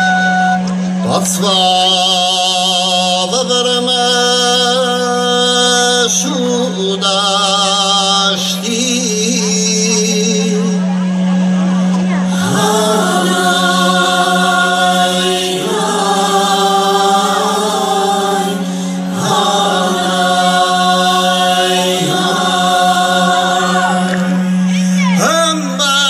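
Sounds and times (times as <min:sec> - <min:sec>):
steady low drone: 0:00.0 - 0:26.0
group singing folk song: 0:12.3 - 0:25.8.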